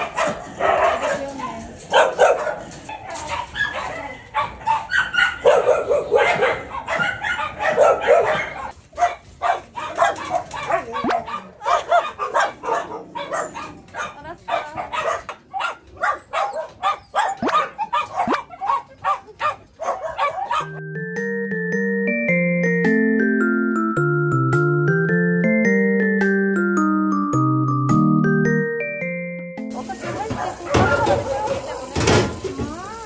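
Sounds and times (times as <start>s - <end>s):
dogs barking: 0.0s - 20.8s, 29.9s - 32.4s
piano-like background music: 20.5s - 31.2s.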